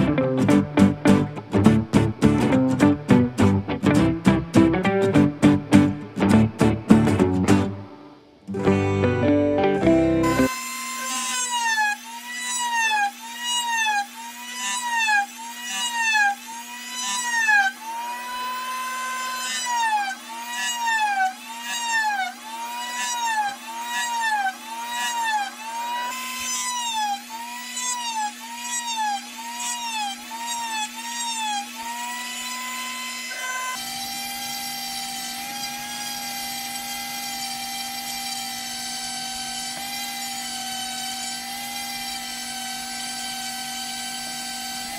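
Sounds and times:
rotary tool whining carving wood: 10.3 - 44.9.

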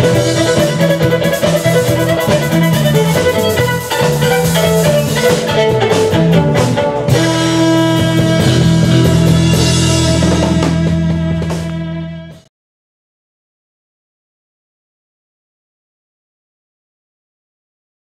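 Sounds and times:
live folk band playing: 0.0 - 12.5.

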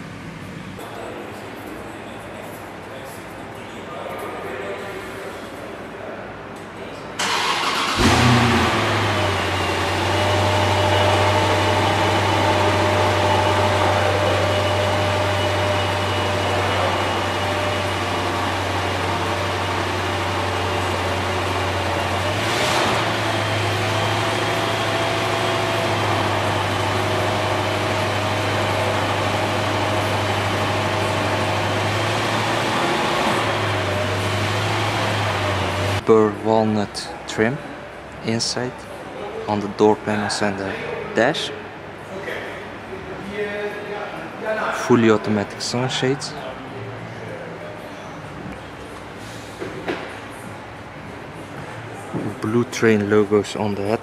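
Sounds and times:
car engine idling: 7.2 - 36.0.

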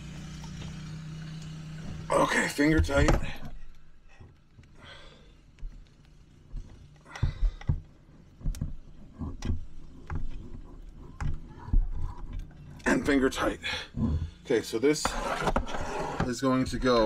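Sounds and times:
plastic connectors clicking and knocking: 5.5 - 12.6.

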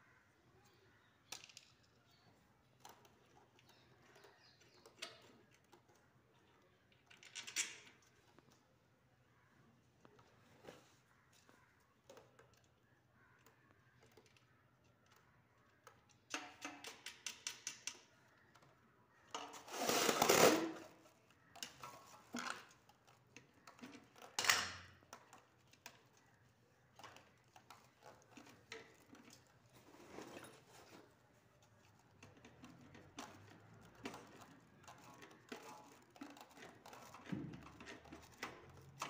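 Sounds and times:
scraping rustle: 19.5 - 21.2, 27.9 - 39.0.

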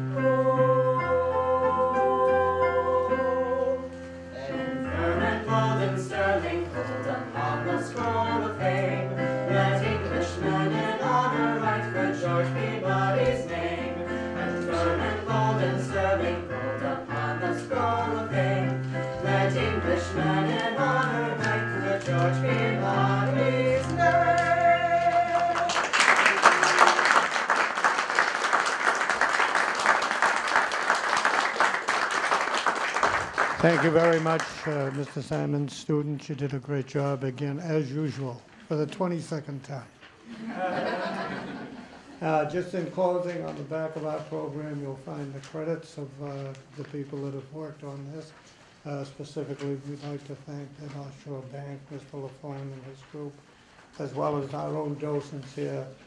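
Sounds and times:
keyboard accompaniment: 0.0 - 26.0
vocal trio singing: 0.0 - 26.0
audience applauding: 24.0 - 35.5.

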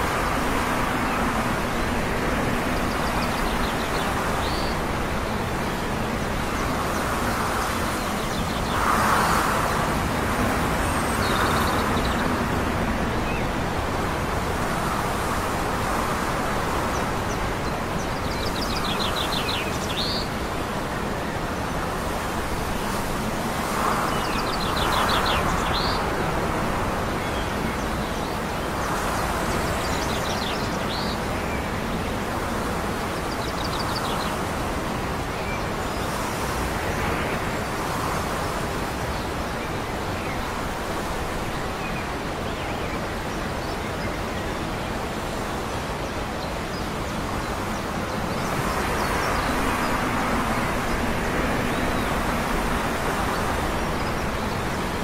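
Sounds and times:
wind: 0.0 - 55.0
distant traffic: 43.1 - 55.0.

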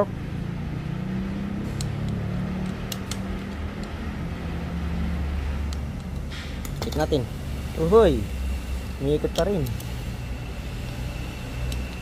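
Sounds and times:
low mechanical hum: 0.0 - 12.0
torque wrench clicks: 1.7 - 4.0, 9.2 - 9.9, 10.8 - 12.0.

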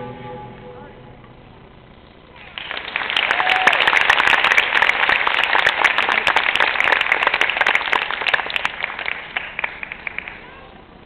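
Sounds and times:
audience applauding: 2.3 - 10.7.

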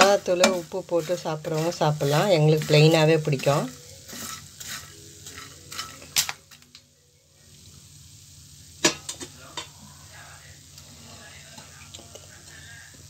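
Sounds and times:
popcorn rustling: 0.0 - 6.8.

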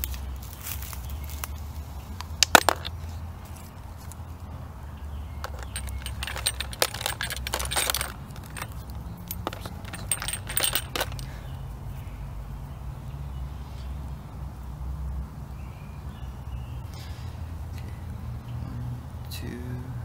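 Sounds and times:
glass and plastic bottles clinking: 2.2 - 3.0, 5.4 - 11.4.

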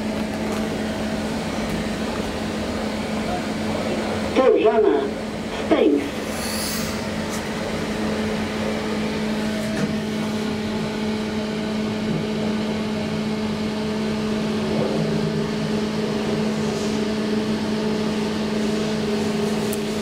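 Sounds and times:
elevator machine hum: 7.0 - 20.0.

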